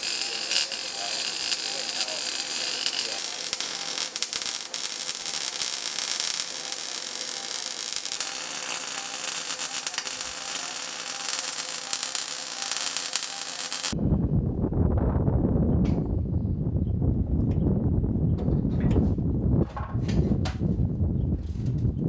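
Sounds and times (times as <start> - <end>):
welder arc crackling and hissing: 0.0 - 14.0
low rumble: 14.0 - 22.0.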